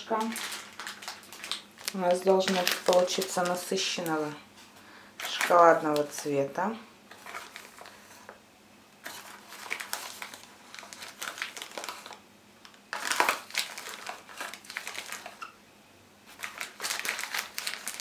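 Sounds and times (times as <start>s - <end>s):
foil packet crinkling: 0.0s - 4.4s, 5.2s - 6.5s, 7.1s - 8.2s, 9.0s - 12.2s, 12.9s - 15.5s, 16.3s - 18.0s.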